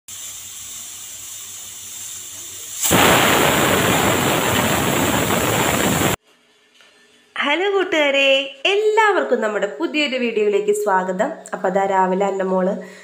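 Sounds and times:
pressure cooker hissing steam: 0.1s - 6.2s.

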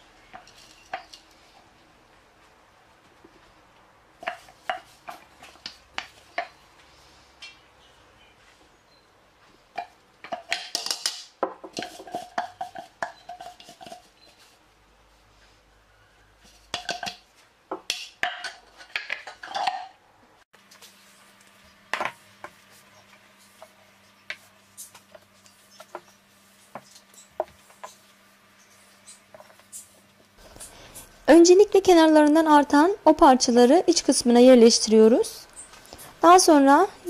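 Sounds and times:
kitchenware clattering: 9.8s - 14.1s, 16.7s - 20.0s.

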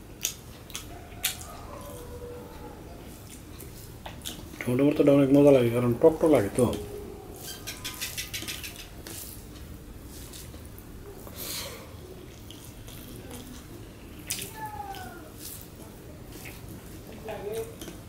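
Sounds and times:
person chewing: 0.0s - 4.6s, 6.6s - 18.0s
fingers squishing wet food: 0.1s - 5.6s.

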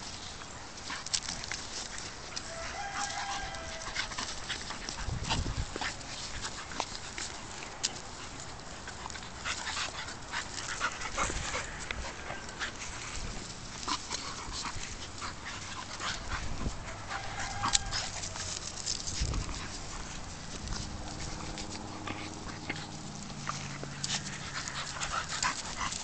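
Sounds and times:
dogs scuffling on grass: 0.0s - 26.0s
dog panting: 0.9s - 26.0s.

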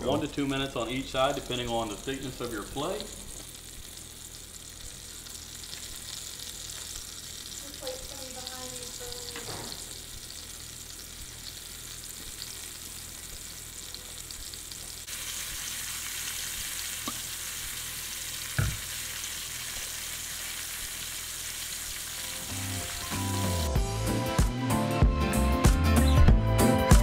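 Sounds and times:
fish sizzling in hot oil: 0.0s - 24.0s
dull knock: 18.6s - 18.8s.

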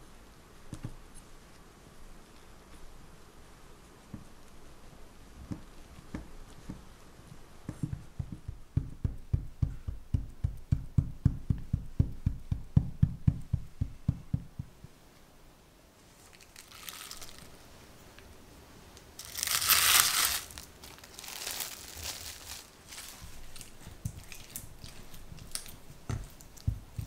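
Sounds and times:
tamper thumping crumb base: 5.3s - 15.0s, 19.2s - 27.0s
plastic wrap crinkling: 16.1s - 17.6s, 19.0s - 27.0s.

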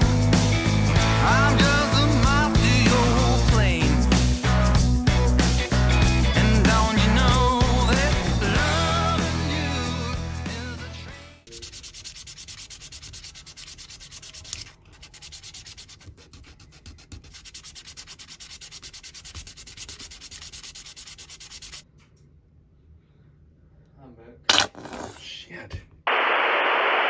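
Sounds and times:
background music: 0.0s - 11.4s
hand sanding small metal part: 11.5s - 21.8s.

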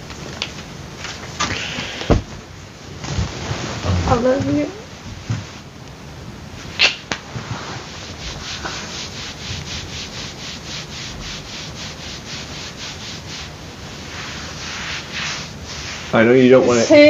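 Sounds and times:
hand rubbing over clothing: 2.3s - 5.7s, 7.2s - 17.0s
sharp clothing rustles: 2.3s - 5.7s.

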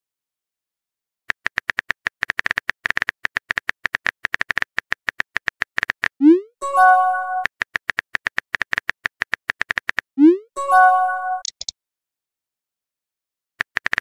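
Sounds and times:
phone keyboard typing clicks: 1.3s - 6.2s, 7.4s - 10.1s, 11.4s - 11.7s, 13.6s - 14.0s
electronic chime: 10.4s - 11.5s.

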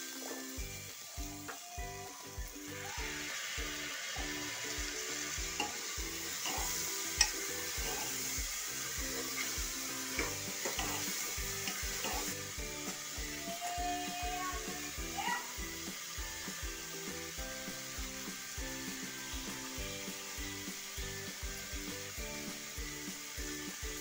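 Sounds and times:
background music with steady beat: 0.0s - 24.0s
vegetables sizzling in hot oil: 0.0s - 24.0s
metal spoon scraping and clinking pot: 5.5s - 8.3s, 9.2s - 12.4s.

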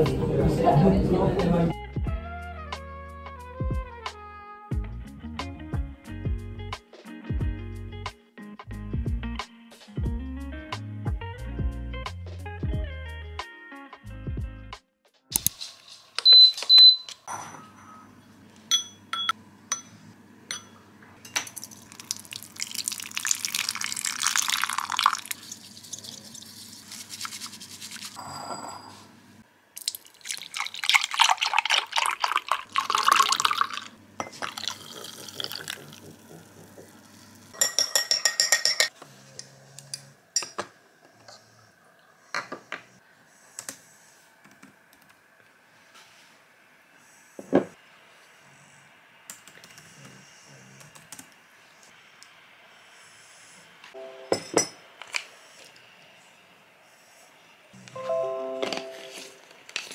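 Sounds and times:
spoon clinking against glass: 18.7s - 21.5s, 37.6s - 38.9s, 54.2s - 54.8s
liquid pouring: 21.6s - 28.2s, 29.8s - 37.4s
bamboo whisk brushing in bowl: 25.3s - 28.2s
utensils clicking and tapping: 37.6s - 39.0s.

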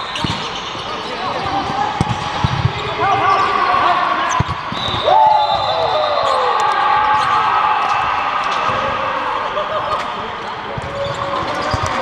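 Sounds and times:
shoes squeaking on court: 0.0s - 5.0s, 9.9s - 12.0s.

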